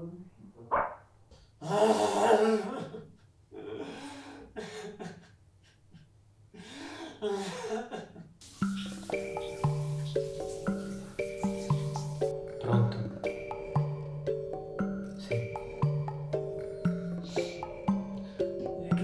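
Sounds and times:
music with mallet percussion: 8.5 - 19.0.

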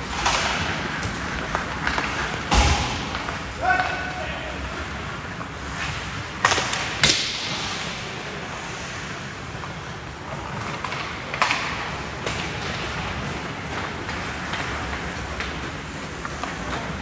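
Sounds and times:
skates scraping on ice: 0.0 - 17.0
hockey stick and puck cracks: 0.1 - 4.1, 5.7 - 8.0, 10.6 - 17.0.

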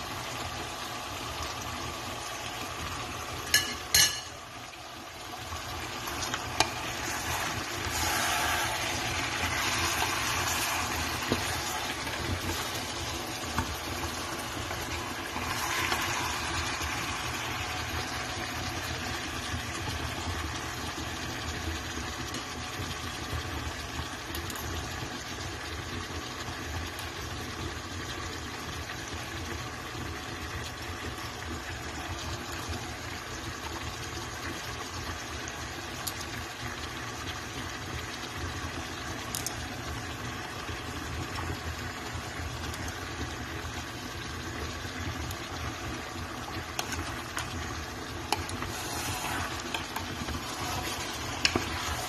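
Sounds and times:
food sizzling in a pot: 0.0 - 52.0.

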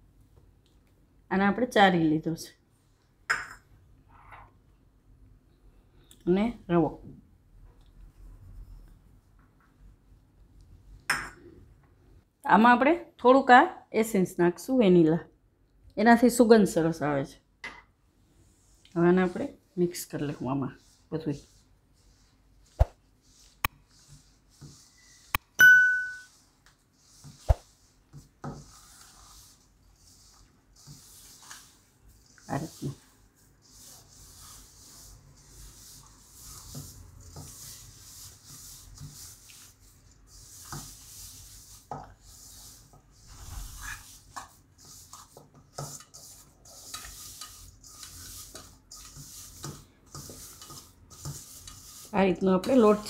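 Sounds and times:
hand kneading dough in a bowl: 18.5 - 53.0.

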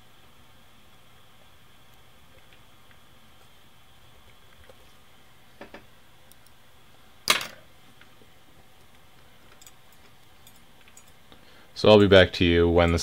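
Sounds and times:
faint mechanical clicks: 5.7 - 6.6, 8.8 - 11.4.

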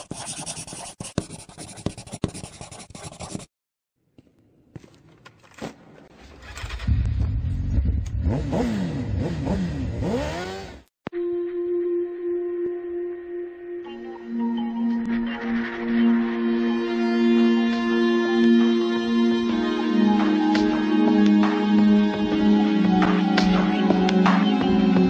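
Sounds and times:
pen sketching on paper: 0.0 - 3.5
motorcycle engine revving: 6.2 - 10.9.

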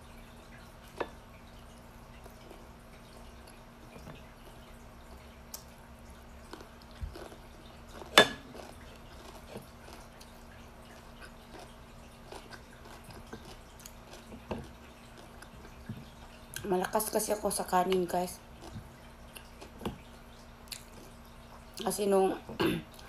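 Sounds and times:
faint steady hum: 0.0 - 23.0
person chewing with lip smacks: 20.7 - 21.1.

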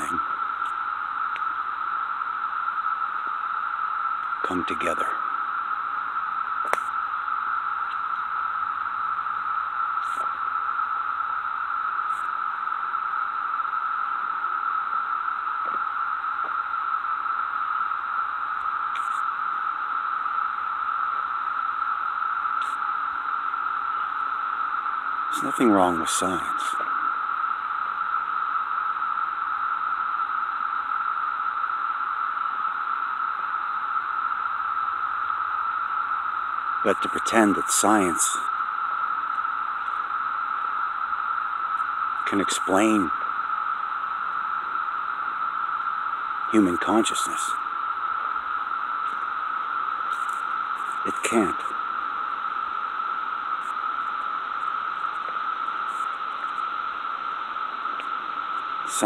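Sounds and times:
steady static hiss: 0.0 - 59.0
faint ticks: 0.6 - 1.6, 6.6 - 7.0, 7.8 - 8.3, 10.0 - 10.4, 15.6 - 16.6, 18.5 - 19.3, 22.5 - 22.9, 39.2 - 40.1, 41.7 - 42.4, 57.9 - 59.0
sharp click: 6.6 - 6.9.

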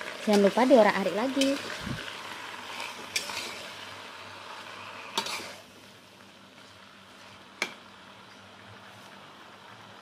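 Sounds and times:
greens sizzling in hot oil: 0.0 - 10.0
metal spatula stirring in wok: 1.4 - 3.9, 4.7 - 5.7.

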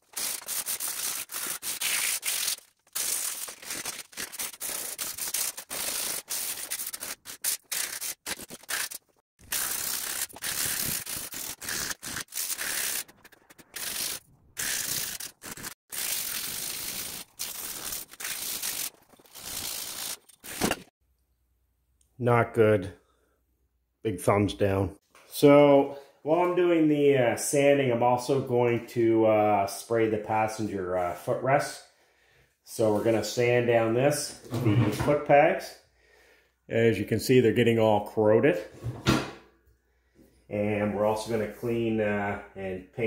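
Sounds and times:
sandpaper rasping on metal: 0.0 - 20.7.

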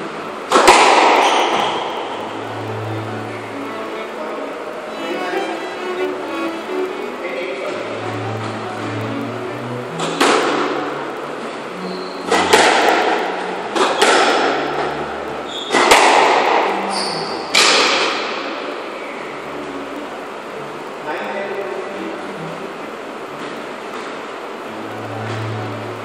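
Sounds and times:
squash ball smacks: 0.5 - 1.9, 12.3 - 14.6, 15.7 - 16.7.

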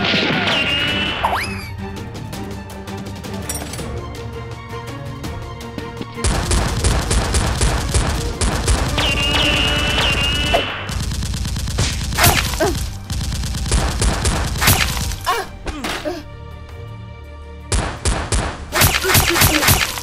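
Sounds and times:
automatic gunfire sound effects: 6.2 - 15.2.

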